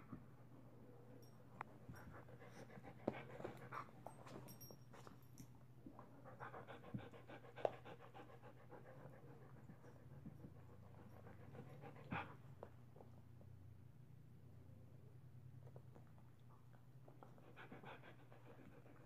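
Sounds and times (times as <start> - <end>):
dog panting: 6.1 - 12.8, 17.2 - 19.0.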